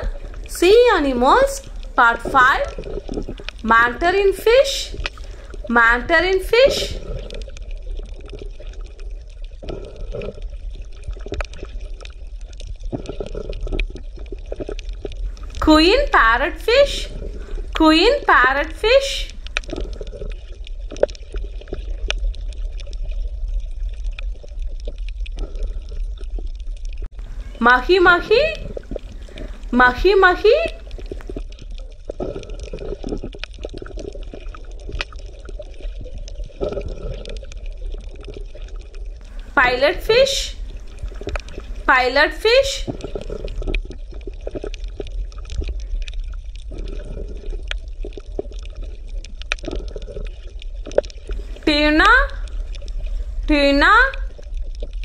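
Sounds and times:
bubbling pops and gurgles: 0.0 - 55.0
low underwater rumble: 0.0 - 55.0
short clicks and crackles: 4.9 - 5.6, 19.3 - 23.1.

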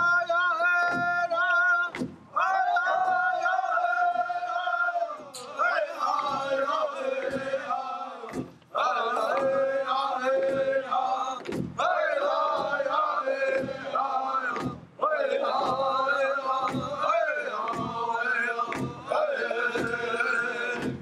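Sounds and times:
group singing in high voices: 0.0 - 21.0
large drum beaten with sticks: 0.8 - 1.3, 5.4 - 7.7, 8.3 - 20.1, 20.7 - 21.0.

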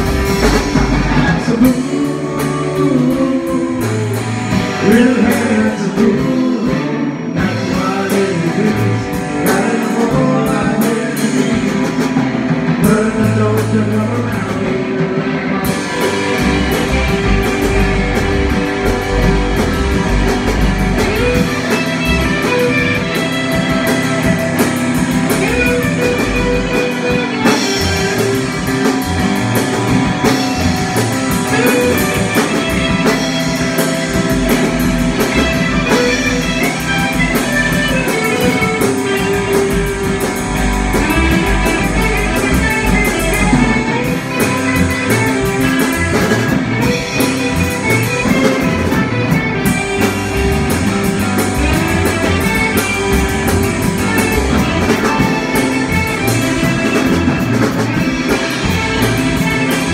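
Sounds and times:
bass guitar: 0.0 - 59.9
drum kit: 0.0 - 59.9
electric guitars: 0.0 - 59.9
man singing: 0.6 - 17.9.

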